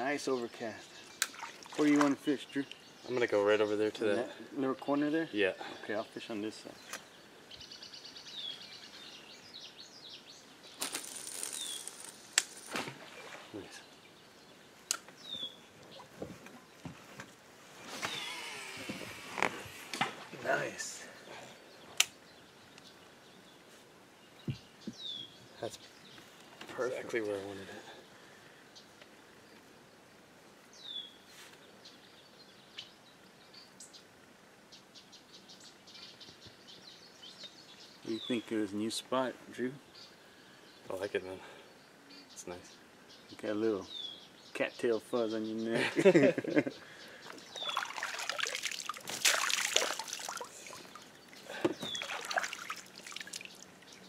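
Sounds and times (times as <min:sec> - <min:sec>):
water trickling and splashing: 0:00.4 - 0:02.9, 0:10.9 - 0:13.8, 0:47.2 - 0:54.0
high falling chirp: 0:10.7 - 0:12.8, 0:46.2 - 0:54.0
small clicks and crackles: 0:10.8 - 0:12.8
faint bird calls: 0:17.8 - 0:19.6, 0:46.4 - 0:48.2, 0:50.3 - 0:54.0.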